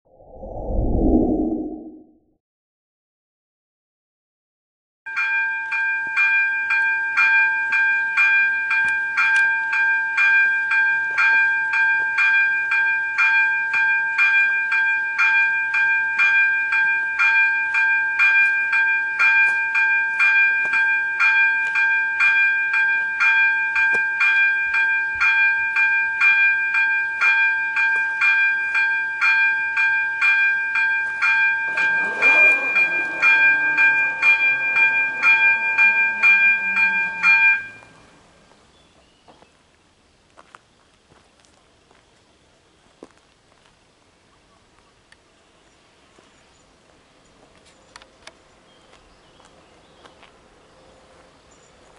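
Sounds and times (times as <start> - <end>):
level crossing warning bell: 5.1 - 38.2
barrier motor whine: 31.7 - 37.9.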